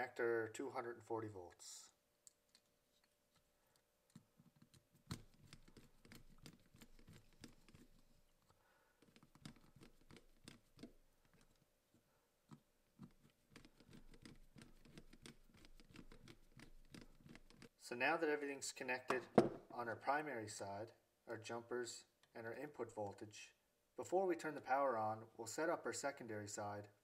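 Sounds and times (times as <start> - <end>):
screwdriver clicking and scraping: 2.2 - 11.6, 12.5 - 17.8.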